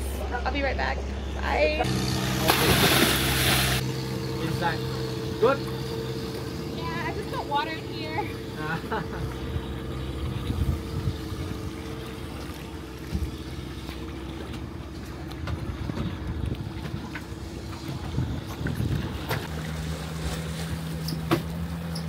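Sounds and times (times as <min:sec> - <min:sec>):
boat engine idling: 0:00.0 - 0:22.0
water lapping: 0:04.4 - 0:22.0
wind on microphone: 0:10.2 - 0:11.8, 0:17.8 - 0:19.4.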